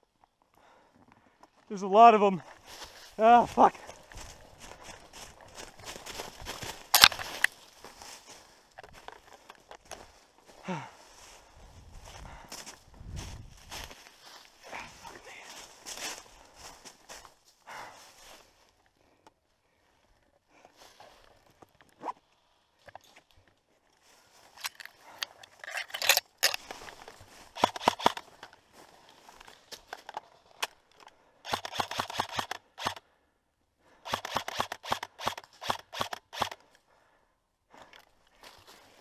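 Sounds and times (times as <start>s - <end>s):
airsoft rifle firing: 27.6s - 28.2s, 34.1s - 36.6s.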